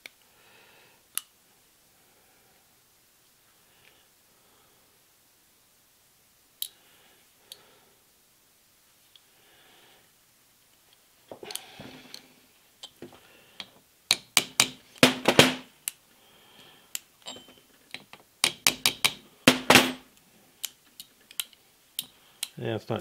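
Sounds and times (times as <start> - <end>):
hammer tapping metal pin: 13.6 - 15.6, 17.2 - 20.0.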